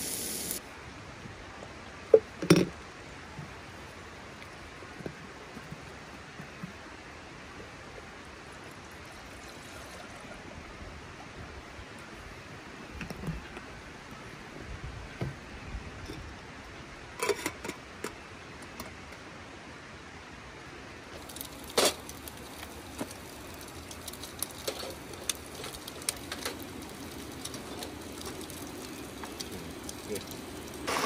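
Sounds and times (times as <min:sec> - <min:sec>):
camp cooking gear clinking: 0:17.2 - 0:19.1, 0:21.2 - 0:31.0
small irregular clicks: 0:21.2 - 0:31.0.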